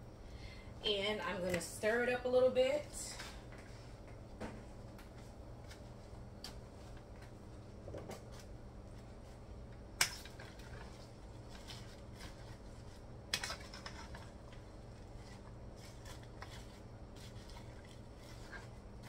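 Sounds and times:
low steady hum: 0:00.0 - 0:19.0
cabbage rustling in a pot: 0:10.4 - 0:19.0.

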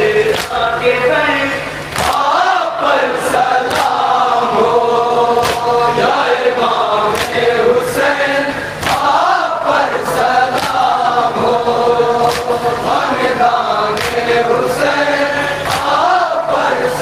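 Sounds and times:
lead reciter on microphone: 0:00.0 - 0:01.9
men chanting in unison: 0:00.0 - 0:17.0.

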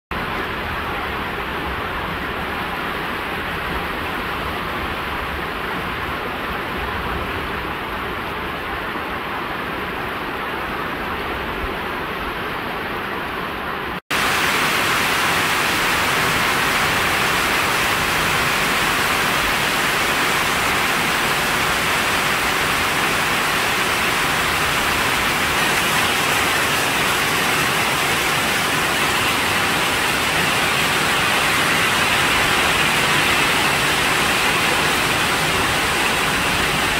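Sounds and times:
rain falling on plants: 0:14.1 - 0:36.9.

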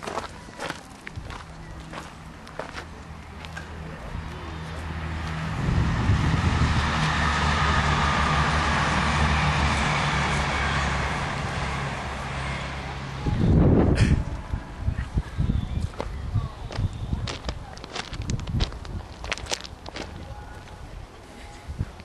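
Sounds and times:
low engine drone: 0:02.3 - 0:16.6.

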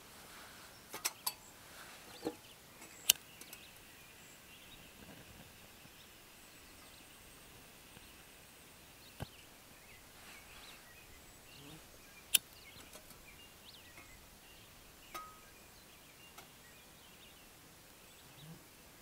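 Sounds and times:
faint bird chirps: 0:00.4 - 0:18.8
sharp click of stove gear: 0:03.0 - 0:03.6.

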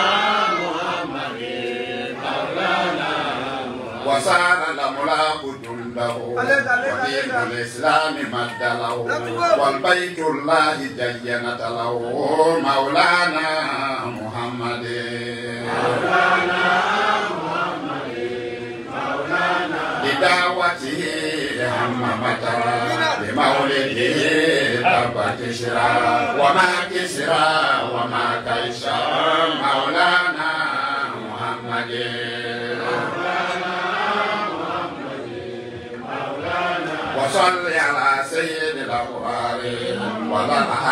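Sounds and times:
man chanting into a microphone: 0:04.0 - 0:15.6, 0:20.0 - 0:31.9.

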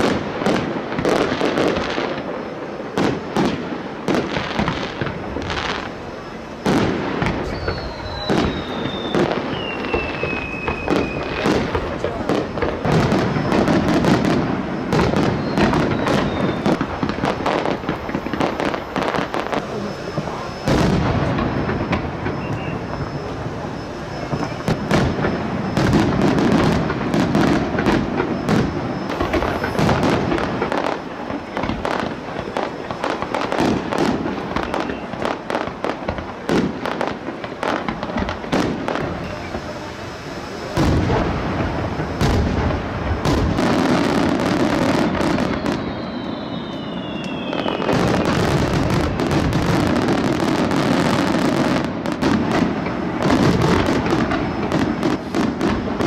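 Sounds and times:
fireworks bangs and crackling: 0:00.0 - 0:56.0
fireworks booms: 0:00.0 - 0:56.0.

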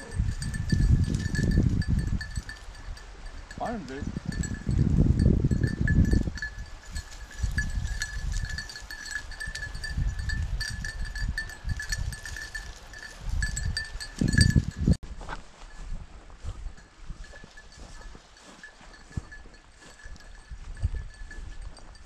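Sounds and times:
small collar bell jingling: 0:00.0 - 0:15.0, 0:16.6 - 0:22.0
low rumbles and thumps: 0:00.2 - 0:02.8.

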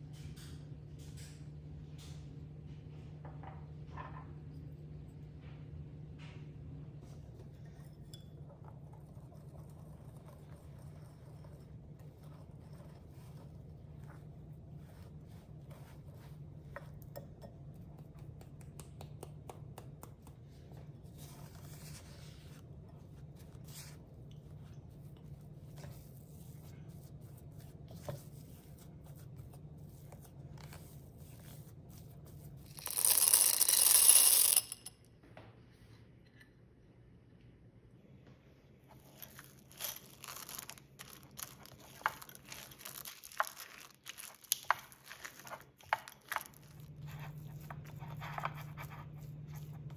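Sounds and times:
whisk scraping glass bowl: 0:07.4 - 0:17.9, 0:39.1 - 0:49.9
chocolate chips poured into bowl: 0:32.7 - 0:34.8, 0:39.3 - 0:45.6.

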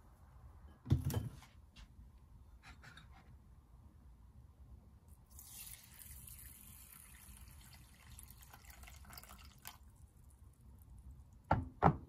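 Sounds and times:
water trickling into a bowl: 0:05.3 - 0:11.1.

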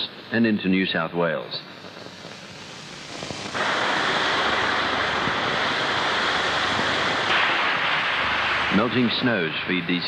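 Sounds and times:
faint film hiss: 0:00.0 - 0:10.0
waterfall rushing water: 0:03.6 - 0:09.3.

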